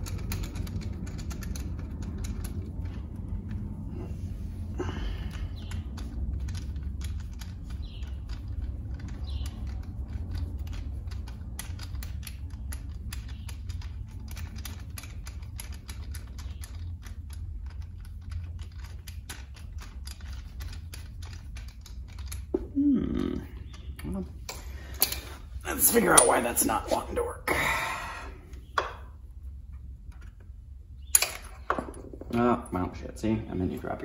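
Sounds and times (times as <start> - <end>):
metal parts clicking and tapping: 0.0 - 3.6, 5.2 - 22.6, 23.5 - 26.5, 30.1 - 32.4
steady low hum: 0.0 - 34.0.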